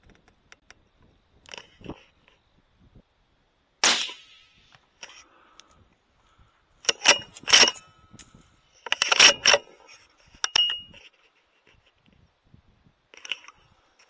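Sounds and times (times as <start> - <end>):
rifle shot: 3.8 - 4.6.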